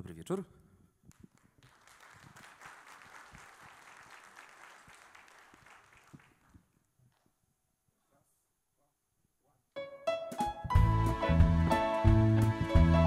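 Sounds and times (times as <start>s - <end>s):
audience applauding: 1.2s - 6.7s.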